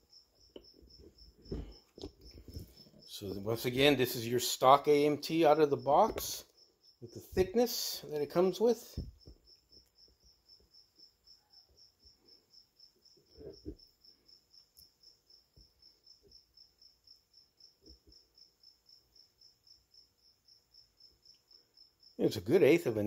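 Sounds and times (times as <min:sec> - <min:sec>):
cricket chirping faintly: 0:00.0 - 0:23.0
soft thump: 0:01.4 - 0:02.8, 0:09.0 - 0:09.4.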